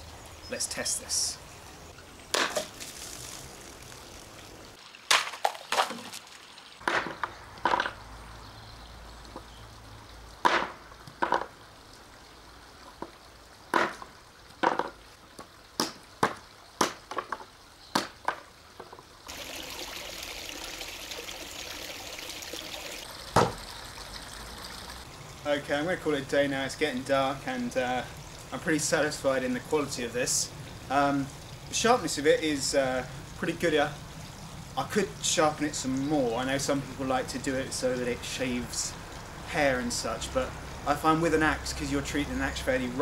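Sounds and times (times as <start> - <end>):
axe chopping bottles and wood: 2.3 - 2.8, 5.1 - 6.2, 6.8 - 8.0, 10.4 - 11.5, 13.7 - 15.0, 15.8 - 18.4, 23.3 - 23.6
water splashing: 2.3 - 8.4, 19.2 - 32.9.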